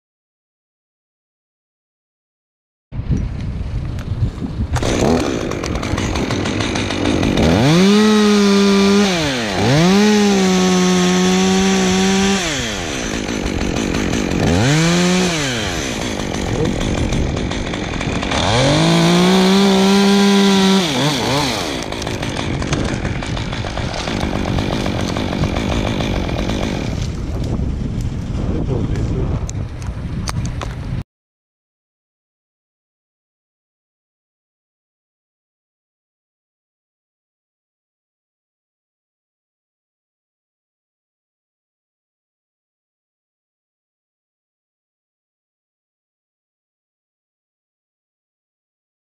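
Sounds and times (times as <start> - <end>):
chainsaw revving: 4.8 - 27.4.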